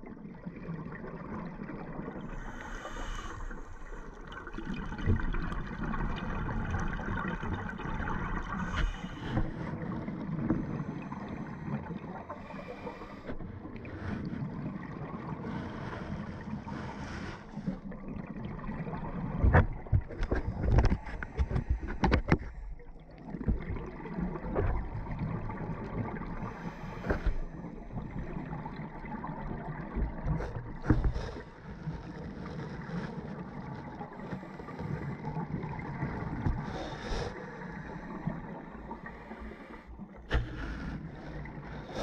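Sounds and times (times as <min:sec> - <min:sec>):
muffled underwater water noise: 0:00.0 - 0:42.0.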